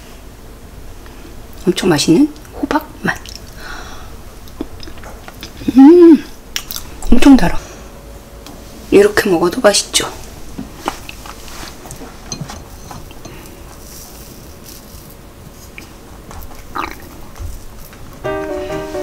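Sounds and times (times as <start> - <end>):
background music: 18.2 - 19.0.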